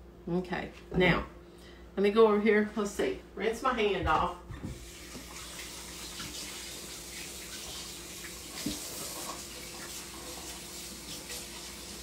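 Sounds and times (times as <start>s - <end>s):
tap water running: 4.5s - 12.0s.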